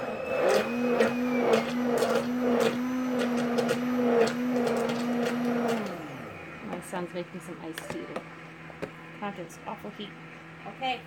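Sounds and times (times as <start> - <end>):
immersion blender motor humming: 0.0 - 8.3.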